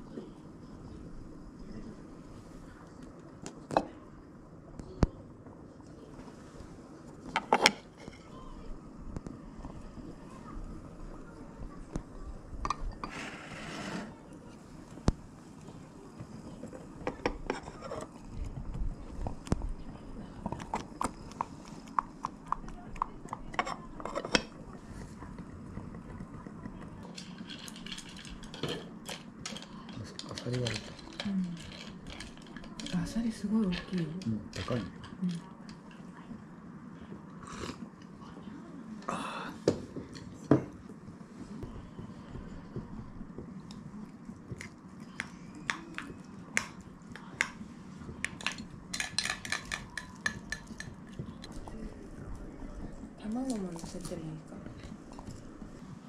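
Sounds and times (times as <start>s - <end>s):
chopsticks clicking against bowls: 48.2s - 51.7s.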